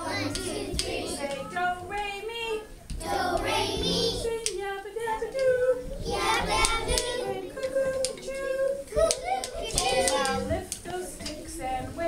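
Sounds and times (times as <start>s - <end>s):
wooden rhythm sticks clicking: 0.0s - 2.1s, 5.3s - 12.0s
children singing: 0.0s - 12.0s.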